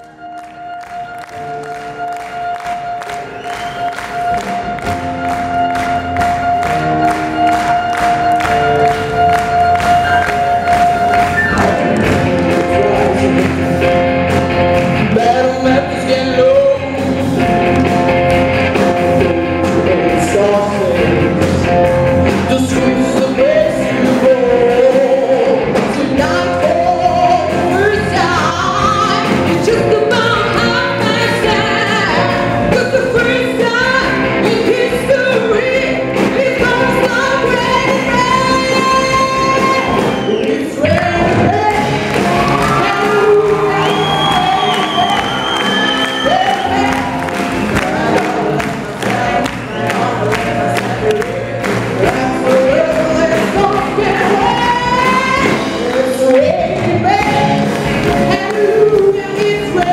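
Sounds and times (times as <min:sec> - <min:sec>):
rock band playing: 0:00.0 - 0:59.9
woman singing: 0:07.5 - 0:13.9, 0:15.0 - 0:17.5, 0:22.4 - 0:59.9.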